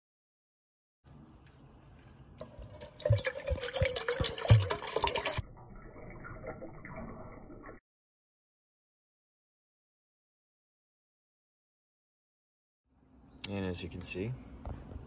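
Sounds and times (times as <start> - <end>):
water pouring into metal pot: 2.4 - 7.8.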